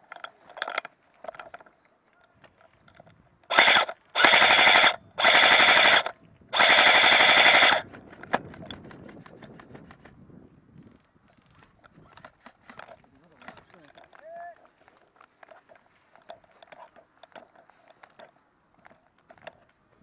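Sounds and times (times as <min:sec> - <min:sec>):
airsoft gun firing full auto: 0:03.5 - 0:08.4.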